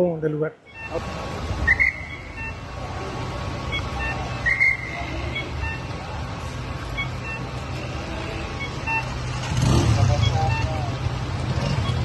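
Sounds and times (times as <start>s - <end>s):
constant noisy hiss: 0.0s - 12.0s.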